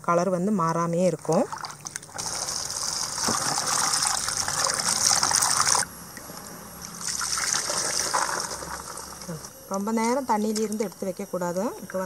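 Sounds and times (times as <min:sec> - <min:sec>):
tap water running into bowl: 0:01.3 - 0:05.9
water pouring from tipped bowl: 0:01.4 - 0:05.9, 0:06.8 - 0:09.3.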